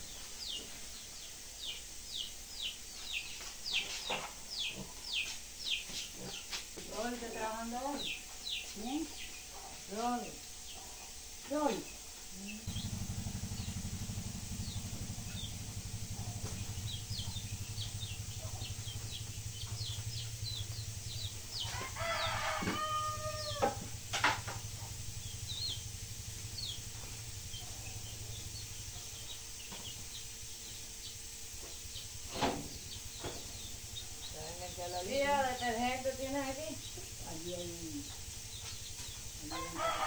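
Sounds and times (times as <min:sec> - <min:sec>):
small birds chirping: 0:00.0 - 0:40.0
steady low hum: 0:00.0 - 0:40.0
rooster crowing: 0:12.6 - 0:26.8, 0:39.3 - 0:40.0.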